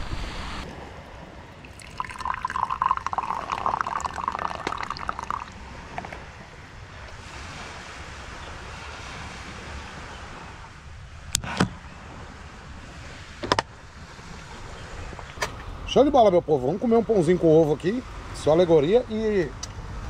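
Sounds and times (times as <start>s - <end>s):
liquid pouring into container: 1.6s - 5.6s.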